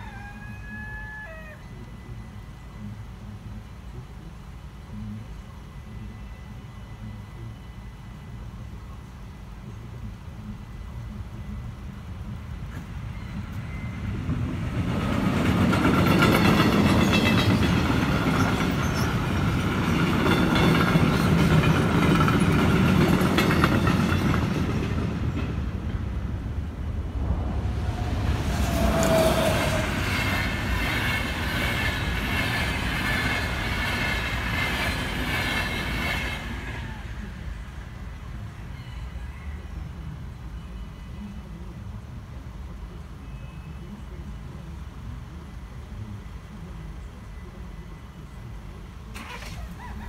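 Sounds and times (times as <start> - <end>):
train wheels clattering on rails: 12.7 - 26.2, 27.9 - 36.9.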